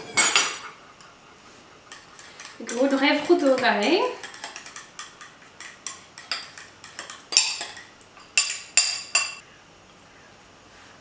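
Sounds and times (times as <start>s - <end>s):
spoon clinking against bowl: 1.9s - 9.4s.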